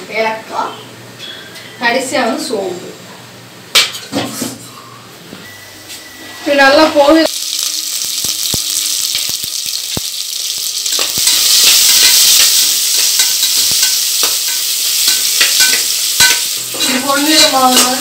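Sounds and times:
onions sizzling in hot oil: 7.1 - 18.0.

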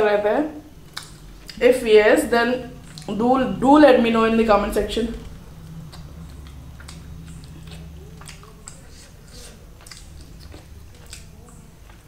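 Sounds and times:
low steady hum: 0.0 - 12.0
close-up chewing with mouth clicks: 0.8 - 1.6, 5.3 - 12.0.

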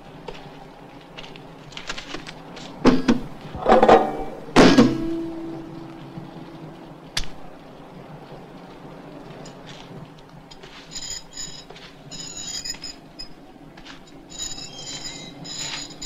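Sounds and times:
loud knocks: 2.9 - 5.6.

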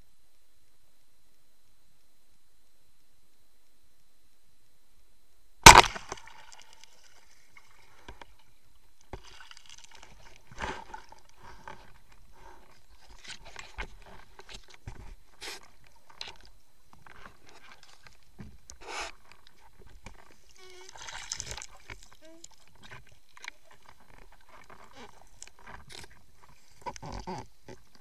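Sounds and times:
speargun firing crack: 5.6 - 6.4.

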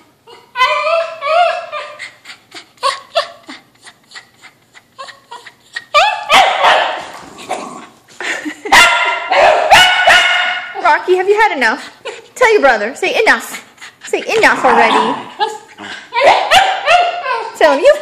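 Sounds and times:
dog whining and yipping: 0.2 - 6.8
dog barking: 6.0 - 7.1, 8.7 - 10.8, 16.2 - 17.3.

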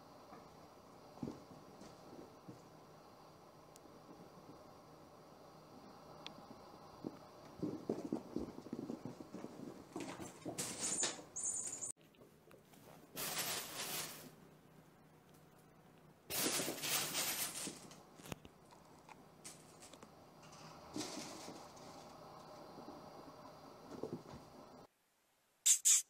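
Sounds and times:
fabric play tunnel rustling: 12.8 - 14.4, 16.3 - 18.4.

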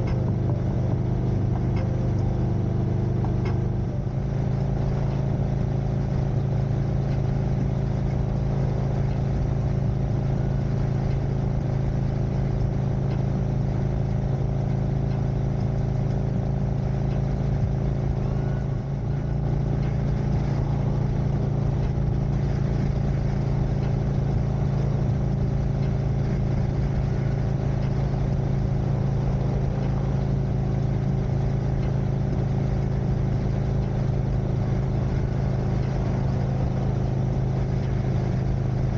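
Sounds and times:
motorcycle engine cruising: 0.0 - 38.9.

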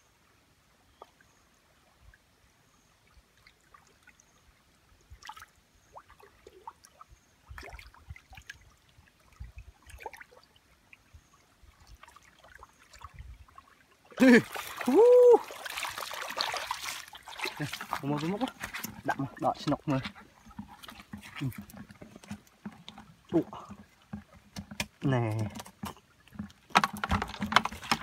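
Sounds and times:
water trickling: 2.9 - 28.0
small splashes of fish: 5.1 - 10.6, 11.8 - 21.9.

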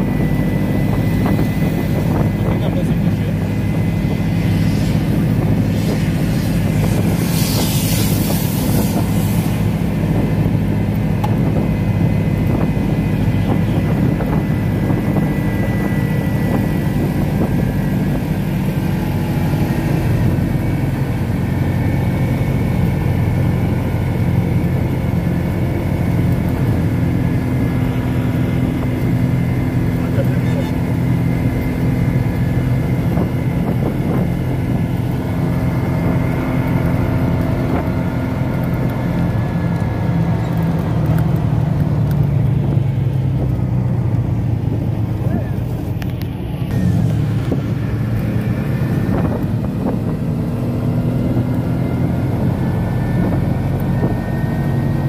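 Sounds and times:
vehicle engine and tyres droning: 0.0 - 55.0
rush of hiss: 5.7 - 9.8.

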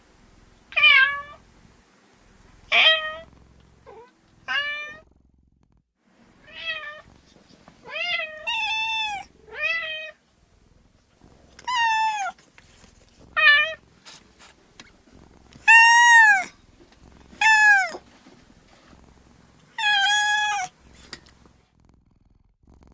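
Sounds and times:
cat meowing: 3.9 - 5.0, 6.4 - 7.1, 7.8 - 10.2, 11.6 - 12.4, 13.4 - 13.8, 15.6 - 16.6, 17.4 - 18.1, 19.7 - 20.8.

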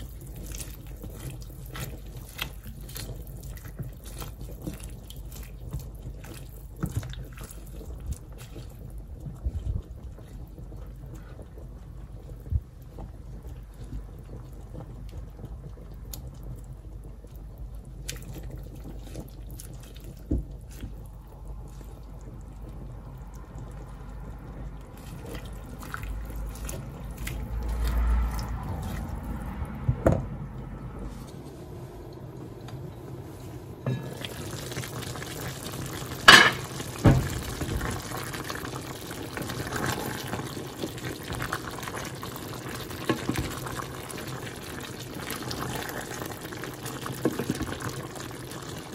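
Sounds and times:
spatula stirring greens: 0.0 - 12.4, 17.3 - 29.4
water simmering in a pot: 0.0 - 48.9
knocks against a pot: 36.3 - 37.4.

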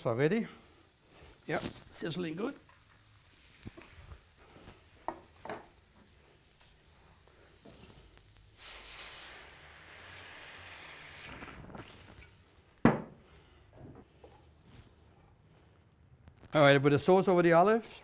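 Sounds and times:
meat sizzling in a pan: 0.0 - 13.6.

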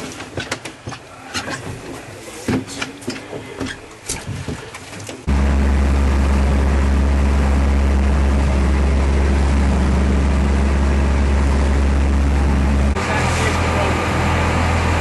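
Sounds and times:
boat engine droning: 5.2 - 15.0.

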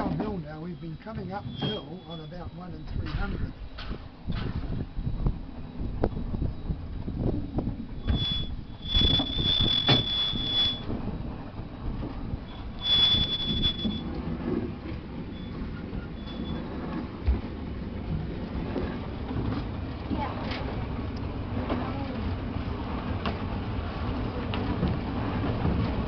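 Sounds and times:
wheels rumbling on track: 0.0 - 26.0
train wheels squealing: 0.8 - 2.6, 8.0 - 10.9, 12.5 - 14.1, 15.3 - 16.7.

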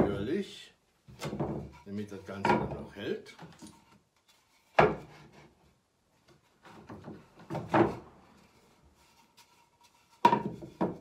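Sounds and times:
wood-on-wood knock: 1.2 - 1.8.

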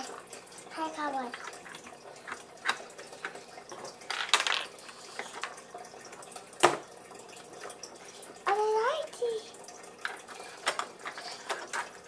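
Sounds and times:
plastic toy pieces clicking: 4.0 - 5.6, 10.0 - 12.0.

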